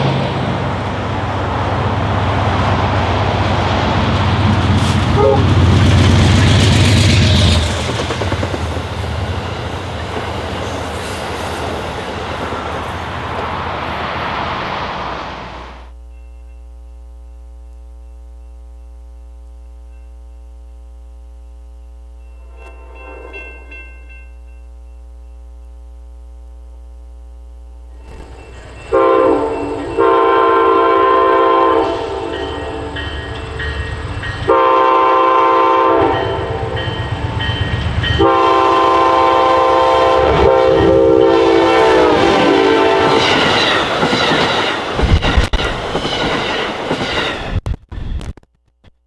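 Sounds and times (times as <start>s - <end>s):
passenger train passing: 0.0s - 16.3s, 22.2s - 24.7s, 28.0s - 47.6s
steady hum of held tones: 15.8s - 40.2s.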